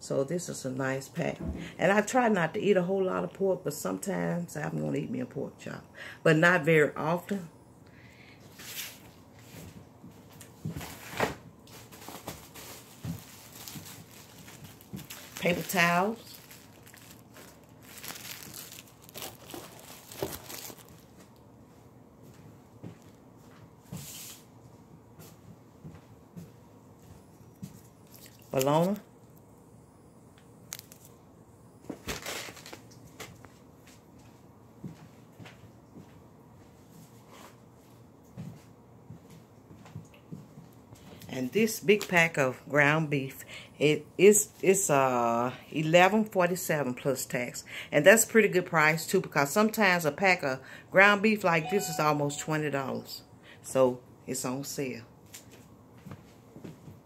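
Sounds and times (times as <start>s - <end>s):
grocery packages rustling: 8.5s - 21.6s, 27.6s - 29.1s, 30.7s - 31.2s, 31.8s - 34.1s.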